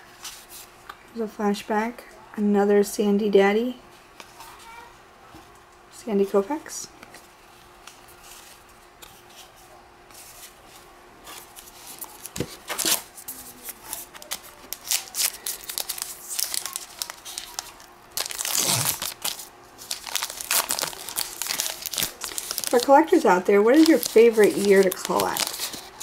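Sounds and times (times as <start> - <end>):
wrapper tearing and crinkling: 11.5 - 26.0.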